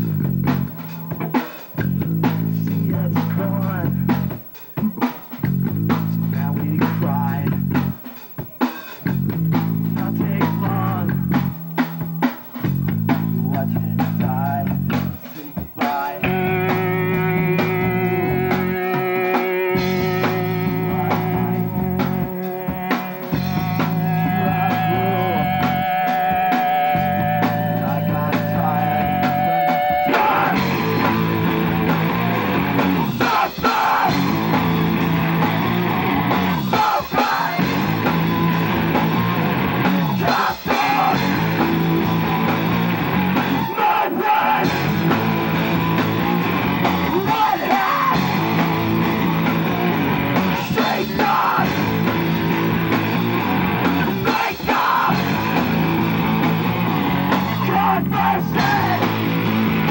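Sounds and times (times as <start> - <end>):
punk rock band playing: 0.0 - 59.9
shouted vocals: 23.5 - 59.9.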